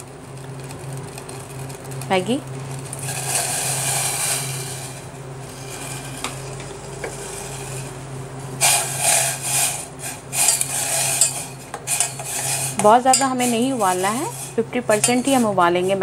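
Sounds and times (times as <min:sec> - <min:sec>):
noodles scraping against steel pan: 0:03.0 - 0:08.0, 0:08.6 - 0:16.0.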